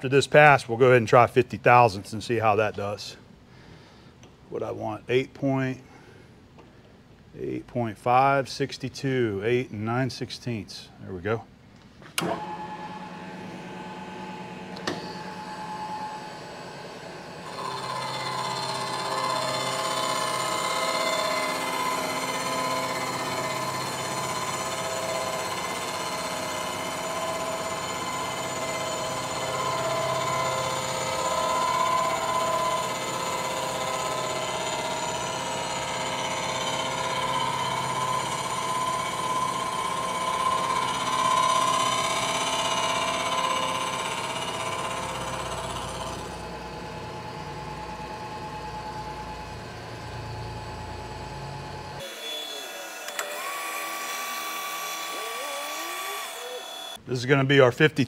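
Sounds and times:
milling machine cutting whine: 12.2 - 57.0.

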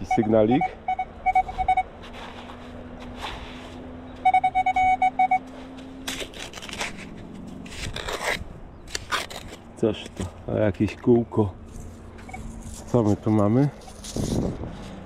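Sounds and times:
metal detector short beeps: 0.0 - 1.9, 4.2 - 5.4.

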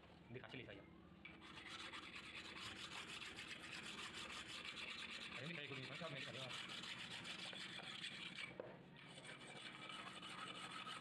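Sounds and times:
sandpaper rubbing on metal: 1.4 - 8.5, 9.1 - 11.0.

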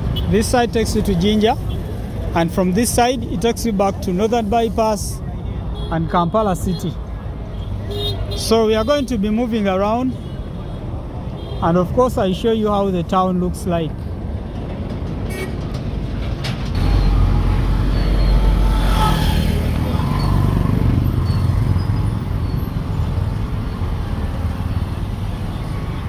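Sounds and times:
cars and motorcycles passing: 0.0 - 26.0
truck engine rumble: 12.5 - 26.0.

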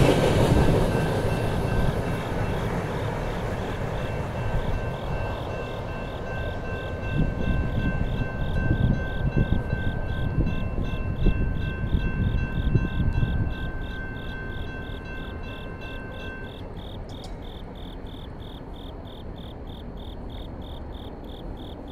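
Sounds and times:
crickets chirping: 0.0 - 21.9
freight train rumble: 0.0 - 21.9.

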